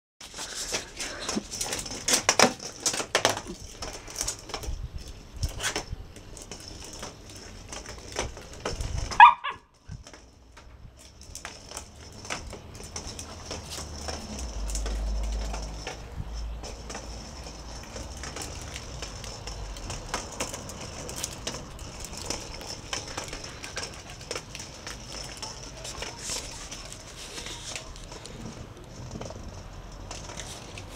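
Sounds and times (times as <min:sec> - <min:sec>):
small dog yelping: 0:09.1 - 0:09.7.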